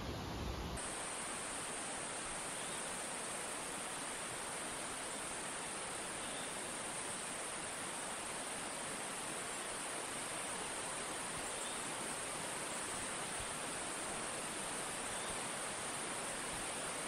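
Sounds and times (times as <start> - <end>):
running water rushing: 0.0 - 17.0
high-pitched insect chorus: 0.8 - 17.0.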